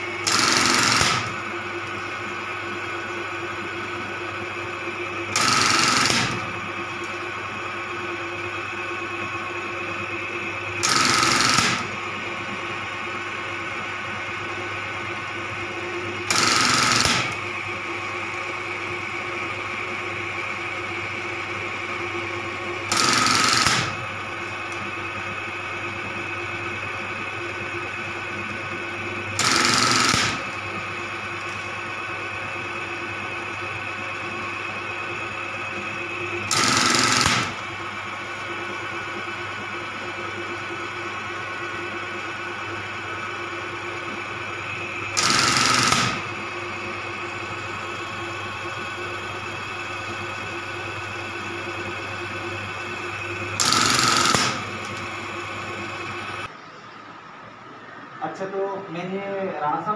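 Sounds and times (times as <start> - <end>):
sewing machine motor humming: 0.0 - 56.5
sewing machine rapid clatter: 0.2 - 1.4, 5.3 - 6.4, 10.8 - 11.9, 16.3 - 17.4, 22.9 - 24.0, 29.4 - 30.6, 36.5 - 37.6, 45.2 - 46.3, 53.6 - 54.6.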